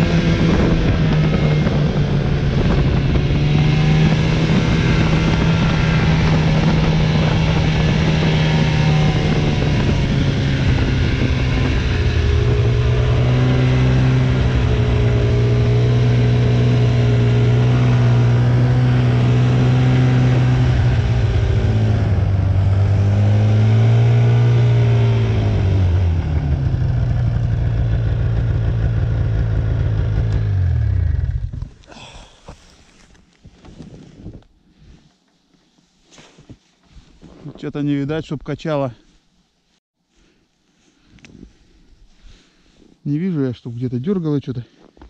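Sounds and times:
snowmobile engine running: 0.0s - 32.2s.

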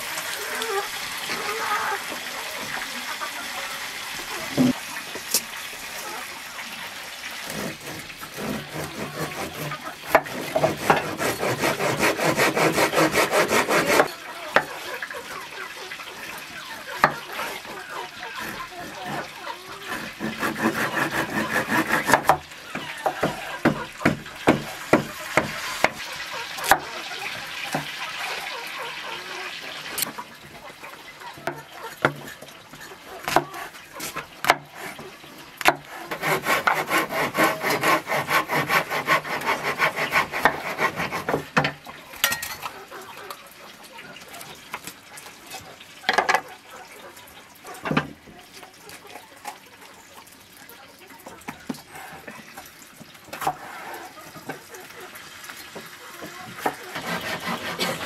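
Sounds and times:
rapid hand scraping strokes: 7.4s - 14.1s, 17.1s - 22.2s, 35.9s - 41.4s, 56.8s - 58.0s.

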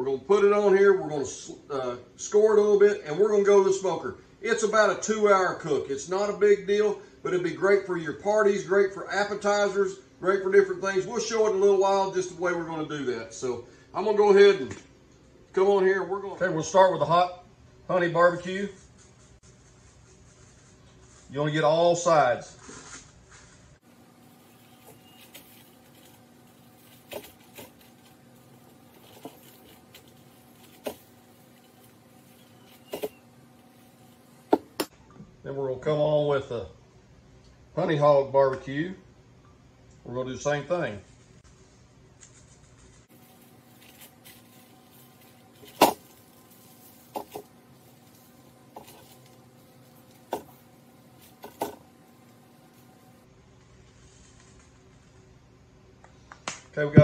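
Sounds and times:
faint steady hum: 0.0s - 57.0s
rub shaken from shaker bottle: 18.7s - 21.4s.

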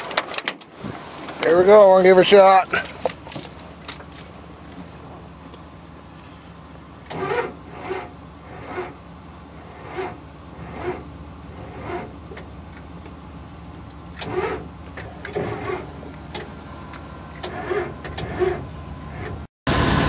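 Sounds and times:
diesel engine cranking slowly: 0.0s - 20.0s.

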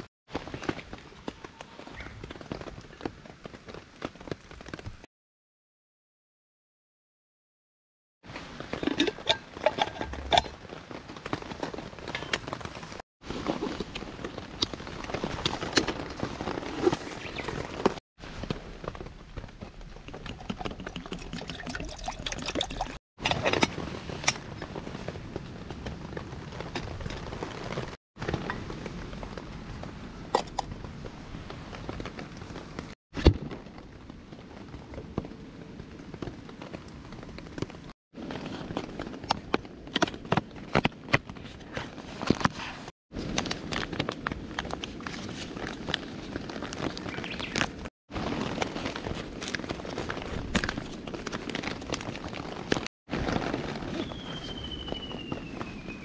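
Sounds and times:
rain pattering on a tarp: 0.0s - 5.1s, 10.3s - 21.0s, 23.4s - 42.4s, 43.1s - 56.0s
rustling cloth pouch: 9.7s - 18.0s, 38.2s - 56.0s.

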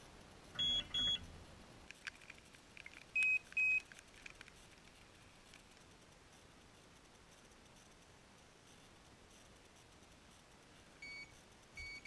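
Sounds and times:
electronic bite alarm beeps: 0.6s - 1.2s, 11.0s - 12.0s
faint clicks: 1.9s - 6.2s.

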